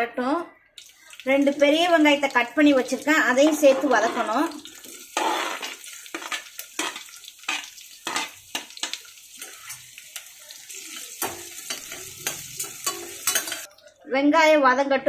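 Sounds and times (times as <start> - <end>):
onions sizzling in oil: 0.8 - 13.7
spoon scraping a pot: 3.4 - 9.9, 11.0 - 13.7.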